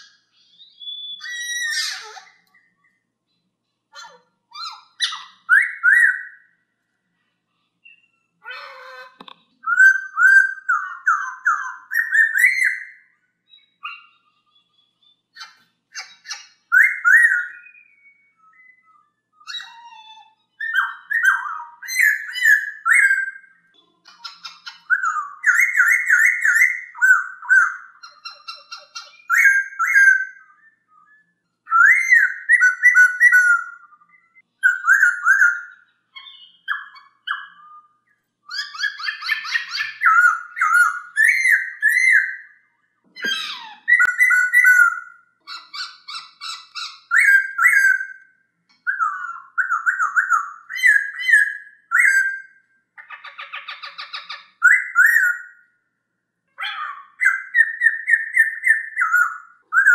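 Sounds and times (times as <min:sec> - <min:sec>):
bird whistled song: 0:00.0 - 0:06.7, 0:07.8 - 0:55.8, 0:56.6 - 0:59.9
high chattering bird notes: 0:07.8 - 0:30.6, 0:31.7 - 0:42.6, 0:43.2 - 0:55.6.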